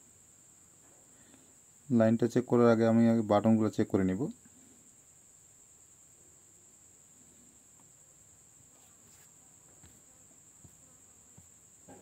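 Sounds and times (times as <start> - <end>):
faint high-pitched whine: 0.0 - 12.0.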